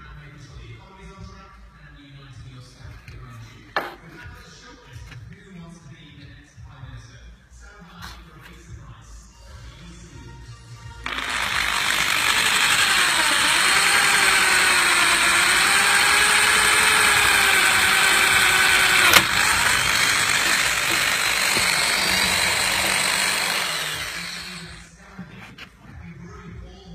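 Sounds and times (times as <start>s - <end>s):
power drill boring into metal: 11.1s - 24.9s.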